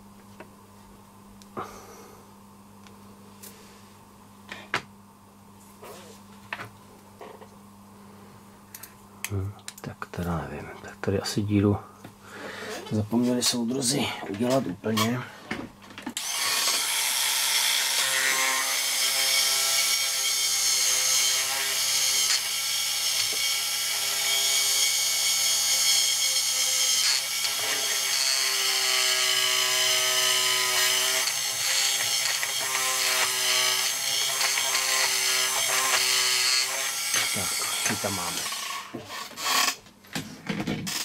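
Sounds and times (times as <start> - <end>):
rotary power tool whining: 16.2 - 39.8, 40.8 - 41.0.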